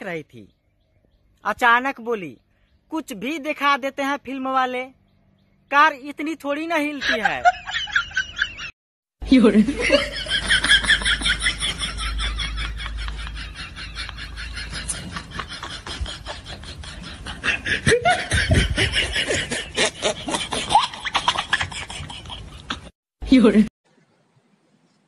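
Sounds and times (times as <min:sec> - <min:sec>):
laughter in rapid pulses: 0:07.0 - 0:08.7, 0:09.5 - 0:22.9.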